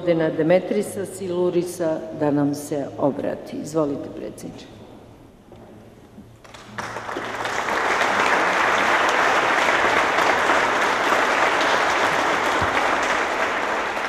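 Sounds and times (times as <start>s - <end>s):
dense steady clapping: 6.4s - 14.0s.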